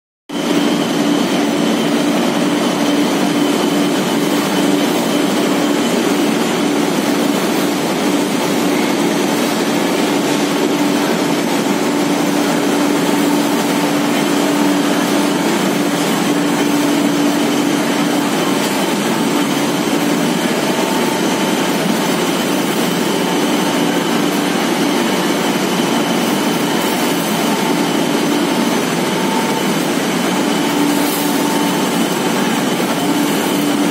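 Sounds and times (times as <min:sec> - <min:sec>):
machines running mechanical noise: 0:00.3 - 0:33.9.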